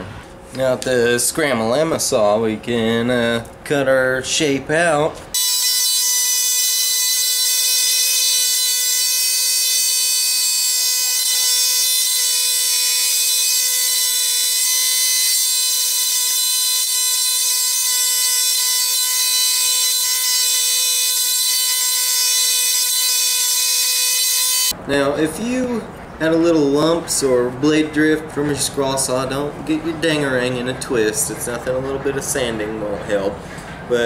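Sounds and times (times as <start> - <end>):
scroll saw whining: 5.4 - 24.7.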